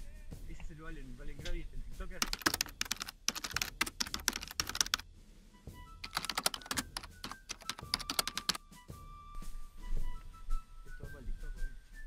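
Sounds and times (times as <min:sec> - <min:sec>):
rapid keyboard-like clicking: 0:02.2 - 0:05.0, 0:06.0 - 0:08.6.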